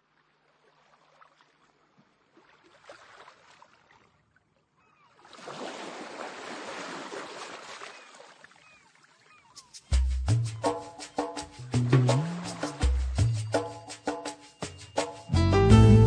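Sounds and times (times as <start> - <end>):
sea waves breaking: 5.2 - 9.9, 11.6 - 13.8.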